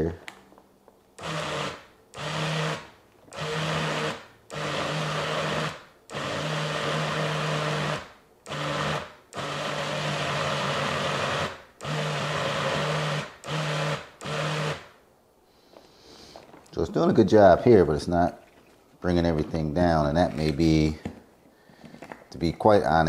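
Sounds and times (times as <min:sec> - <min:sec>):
blender motor whirring in pulses: 0:01.2 - 0:14.9.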